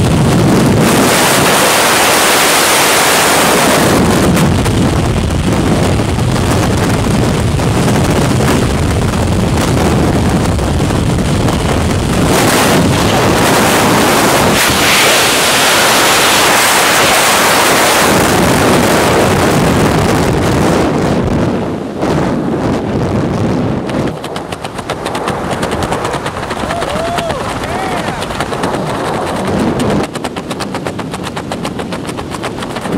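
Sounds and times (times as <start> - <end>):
wind rushing over microphone: 0.0 - 32.9.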